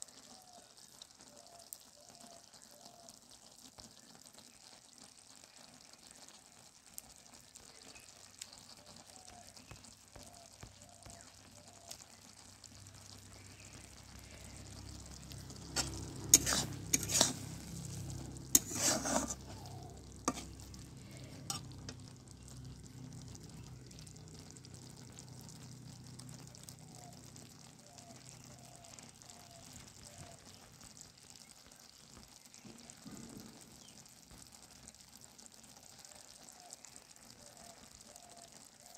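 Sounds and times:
noodles sizzling in a pan: 0.0 - 38.9
metal spatula scraping a pan: 13.8 - 22.1.

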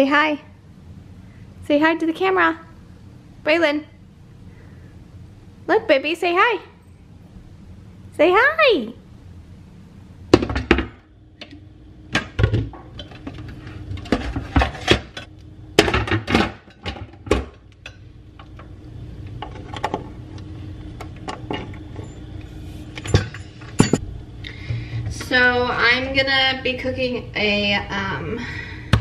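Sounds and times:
stoneware knocking and clinking: 23.0 - 24.0.

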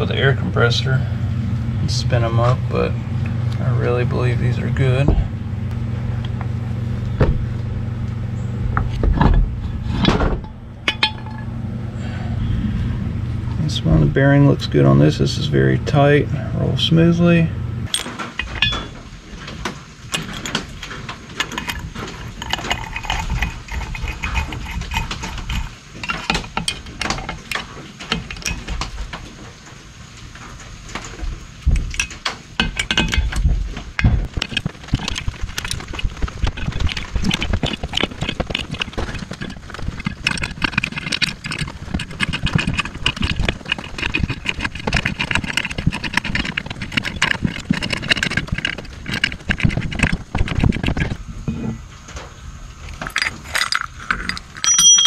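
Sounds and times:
rapid clicking: 20.1 - 28.9, 34.0 - 51.2
metallic clinks of hand tools: 53.1 - 55.0.

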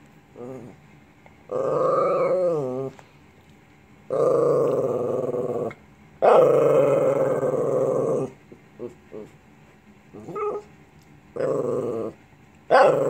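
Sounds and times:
dog vocalizing: 11.4 - 13.0.

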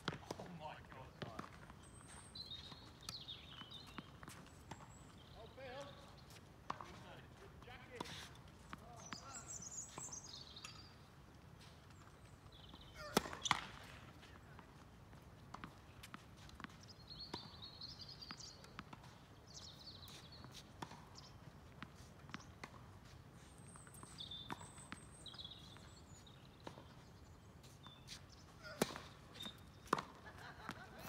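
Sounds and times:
tennis ball bouncing on court: 0.0 - 10.9, 12.6 - 22.9, 23.8 - 25.9, 28.7 - 31.0
birds chirping: 0.3 - 14.8, 15.6 - 21.7, 23.4 - 31.0
tennis ball struck by racket: 13.0 - 14.0, 28.7 - 30.2.

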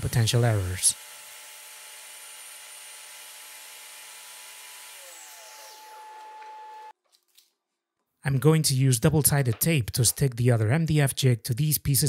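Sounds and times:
table saw cutting: 0.0 - 7.0.

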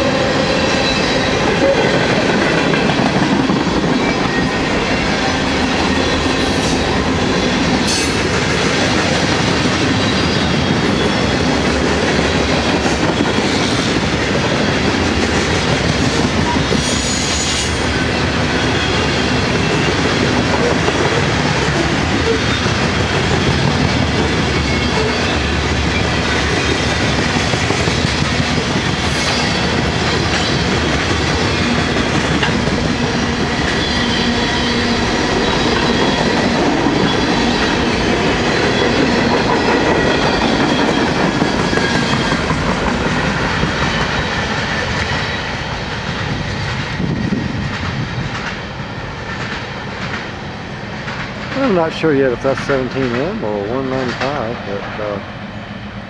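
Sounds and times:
train wheels clacking over rail joints: 0.6 - 50.4, 51.0 - 54.6.

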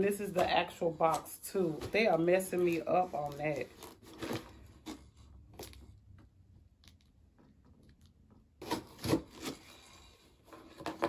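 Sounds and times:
cardboard scraping and rustling: 1.6 - 5.2, 8.6 - 11.0
tool scraping packing tape: 8.6 - 10.8.

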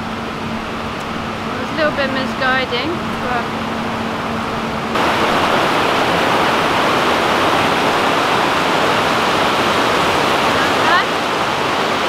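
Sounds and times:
stream rushing over stones: 4.9 - 12.0.

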